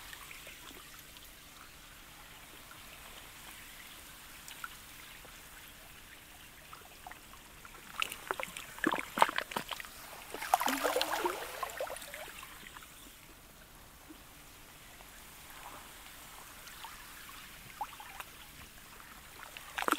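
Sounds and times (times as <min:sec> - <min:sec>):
faint water wash: 0:00.0 - 0:19.9
ice clicks and small splashes: 0:07.8 - 0:11.6, 0:19.4 - 0:19.9
water sloshing: 0:07.8 - 0:12.8.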